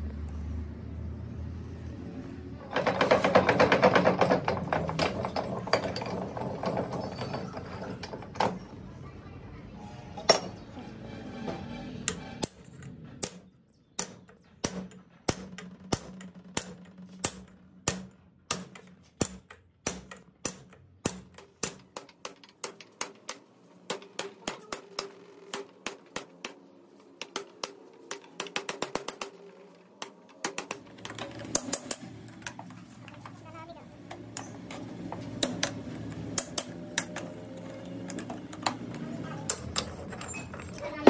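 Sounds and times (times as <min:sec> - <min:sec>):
hammer tapping metal punch: 0:12.1 - 0:26.6, 0:27.2 - 0:32.7, 0:34.1 - 0:39.9.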